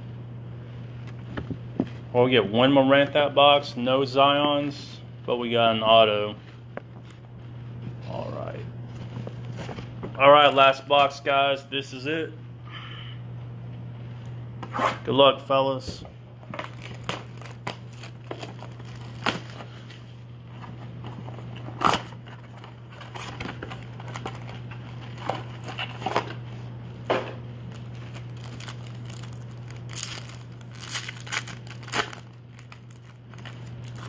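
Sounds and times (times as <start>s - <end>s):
foil wrapper crinkling: 16.5s - 19.8s, 27.7s - 34.0s.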